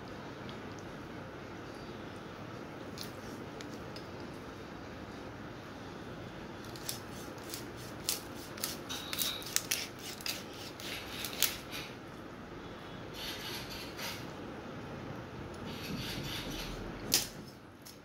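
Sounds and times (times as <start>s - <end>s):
low background noise: 0.0s - 18.0s
blade cutting raw chicken: 6.7s - 11.8s.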